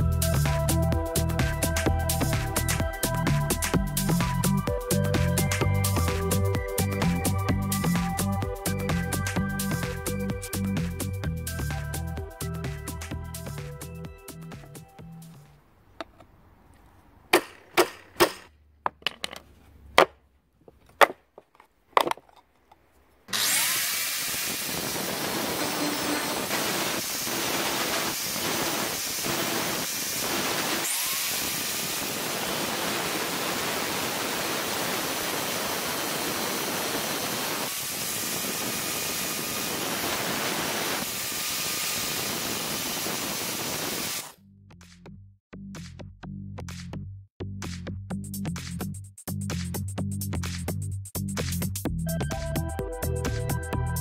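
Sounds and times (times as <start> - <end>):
sharp metal knocks: 17.3 - 19.2
angle grinder grinding metal: 23.3 - 44.3.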